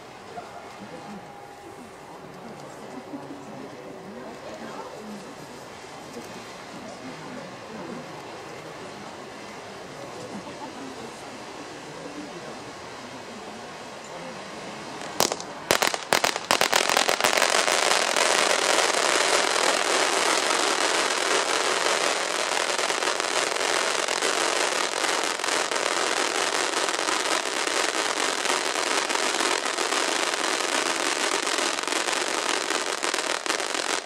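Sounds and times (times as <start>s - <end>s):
firework fountain hissing and crackling: 0.0s - 34.0s
sharp pops: 15.0s - 17.5s.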